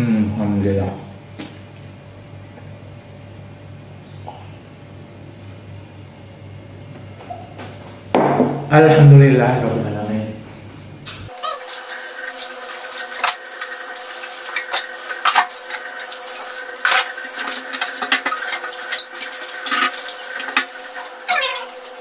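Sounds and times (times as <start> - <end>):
tap water running into sink: 11.3 - 22.0.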